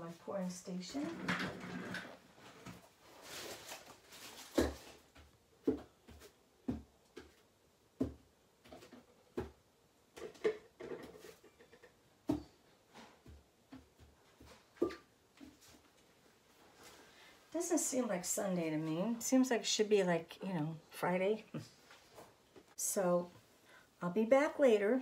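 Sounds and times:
soft rustle: 0:02.3 - 0:05.2
objects knocking and tapping: 0:08.0 - 0:15.7.

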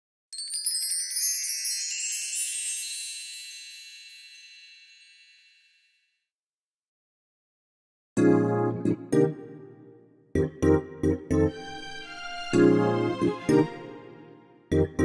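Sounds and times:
tinkling chime cascade: 0:00.3 - 0:06.1.

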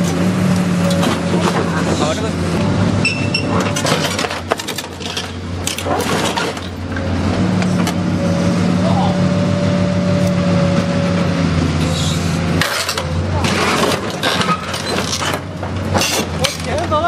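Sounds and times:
excavator engine and hydraulics: 0:00.0 - 0:17.0
strained hydraulic tone: 0:03.0 - 0:03.8, 0:11.8 - 0:12.5
metal cracking and knocking: 0:03.6 - 0:06.8, 0:12.6 - 0:17.0.

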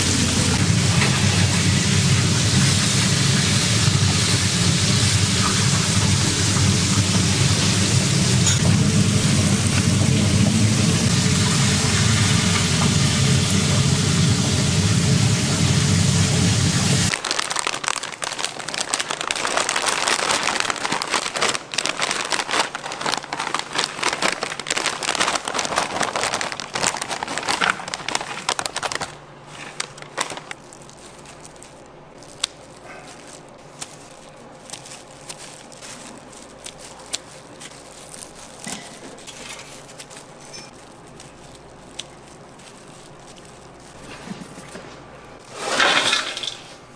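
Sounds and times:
food sizzling and crackling: 0:00.0 - 0:32.7
kitchen roar with low hum: 0:00.0 - 0:46.9.

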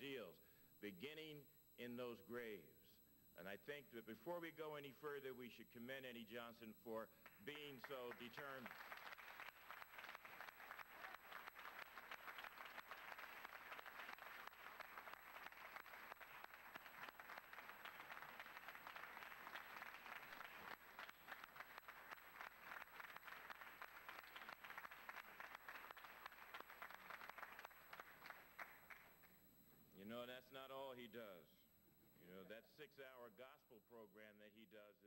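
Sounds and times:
faint audience applause: 0:07.2 - 0:29.3.

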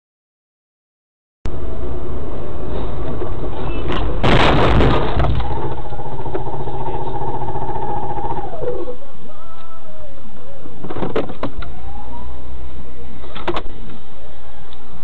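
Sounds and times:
road and engine rumble: 0:01.5 - 0:15.0
whining tone: 0:01.5 - 0:15.0
car crash impact: 0:03.6 - 0:05.9.

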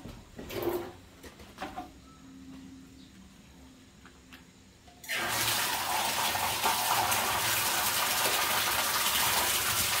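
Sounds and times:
water pouring into washbasin: 0:05.1 - 0:10.0.

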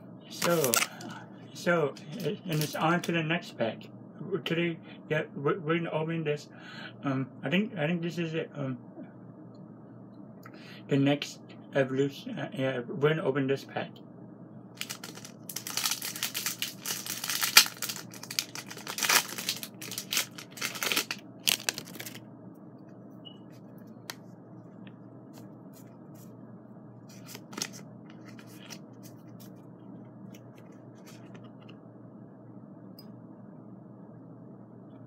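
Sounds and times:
foil wrapper ripping and crinkling: 0:00.4 - 0:00.9, 0:14.8 - 0:22.2.

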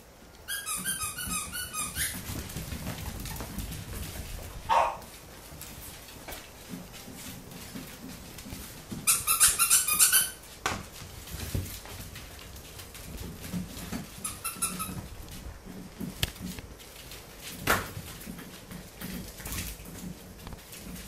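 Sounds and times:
puppies squeaking: 0:00.4 - 0:03.5, 0:04.7 - 0:05.0, 0:09.0 - 0:10.5, 0:14.2 - 0:15.1.

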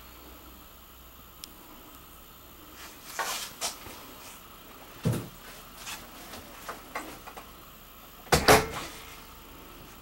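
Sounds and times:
knocks and thumps indoors: 0:05.0 - 0:05.4.

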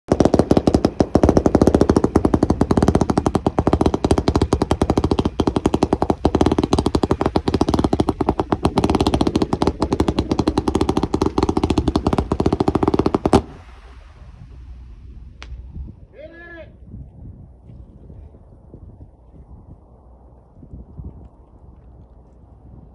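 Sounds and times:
firework volley of rapid shots: 0:00.0 - 0:14.0.

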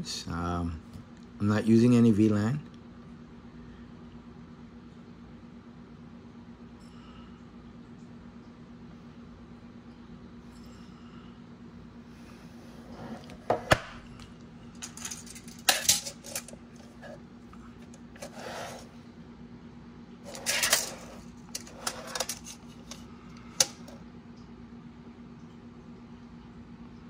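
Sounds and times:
metallic rattles and scrapes: 0:14.7 - 0:17.2, 0:17.8 - 0:19.0, 0:20.2 - 0:24.0.

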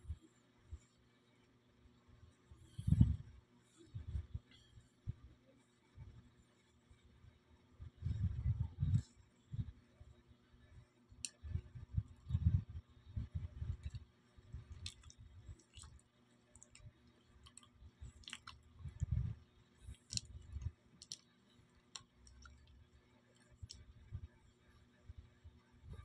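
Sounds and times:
person chewing: 0:14.7 - 0:16.0, 0:16.6 - 0:16.8, 0:17.4 - 0:19.1, 0:19.9 - 0:21.2.

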